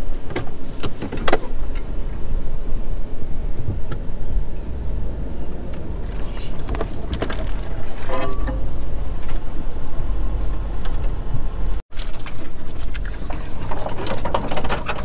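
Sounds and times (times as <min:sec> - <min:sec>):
vehicle engine and tyres rumbling: 0:00.0 - 0:15.0
knocks and clatters: 0:05.7 - 0:09.5, 0:10.4 - 0:15.0.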